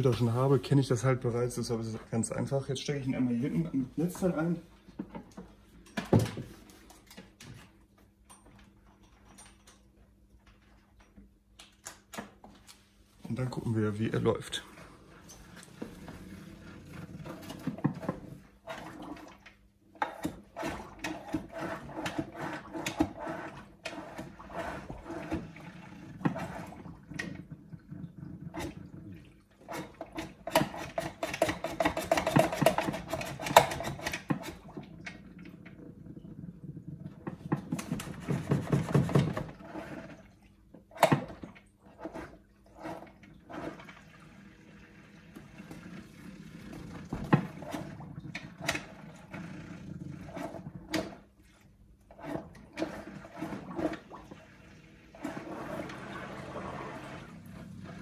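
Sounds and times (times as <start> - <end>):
water gurgling and splashing: 32.2 - 51.4, 52.1 - 58.0.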